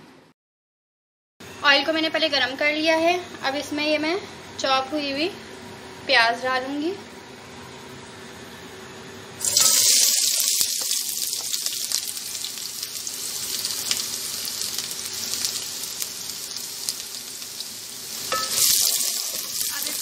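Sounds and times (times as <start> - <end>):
onions sizzling in hot oil: 9.4 - 20.0.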